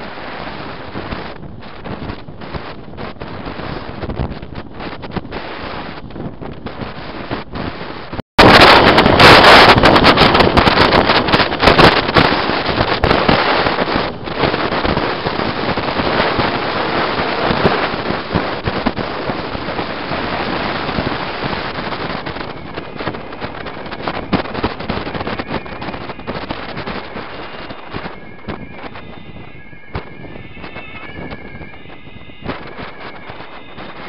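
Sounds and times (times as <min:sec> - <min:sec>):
wind buffeting microphone: 0:00.0 - 0:34.0
rapid crackling: 0:08.4 - 0:34.0.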